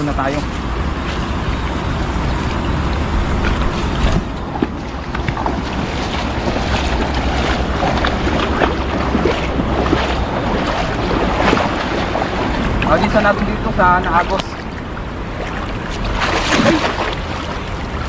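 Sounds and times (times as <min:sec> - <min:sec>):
wind buffeting microphone: 0:00.0 - 0:18.0
water splashing from wading: 0:00.5 - 0:18.0.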